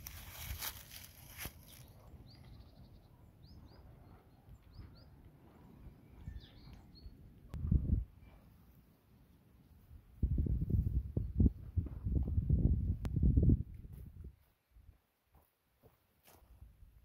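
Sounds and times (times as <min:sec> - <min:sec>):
rustling: 0:00.0 - 0:01.8
small birds chirping: 0:00.3 - 0:07.6.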